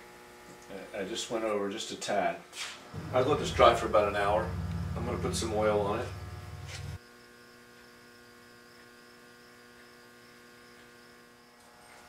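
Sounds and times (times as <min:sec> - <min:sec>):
loud low hum: 0:03.0 - 0:07.0.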